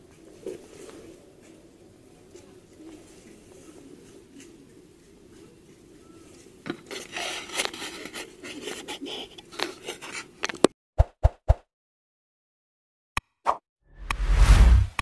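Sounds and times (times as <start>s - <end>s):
rubbing against microphone: 6.8s - 10.4s.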